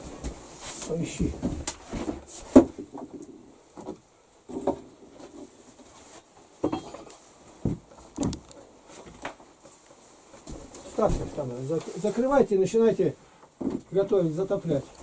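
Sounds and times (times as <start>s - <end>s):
bricks clunking and scraping: 6.6s - 7.1s.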